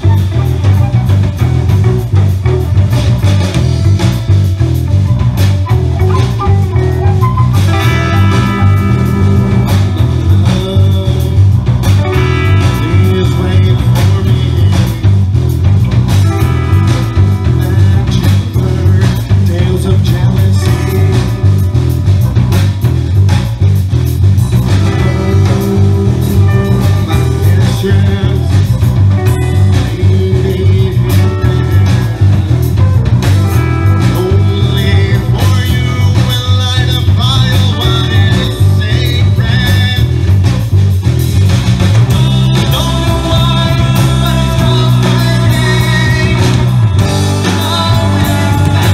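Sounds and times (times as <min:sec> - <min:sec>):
bass guitar: 0:00.0 - 0:48.9
drum kit: 0:00.0 - 0:48.9
electric guitar: 0:00.0 - 0:48.9
man singing: 0:06.0 - 0:15.6, 0:16.2 - 0:21.7, 0:24.6 - 0:32.6, 0:33.5 - 0:40.5, 0:42.0 - 0:48.9.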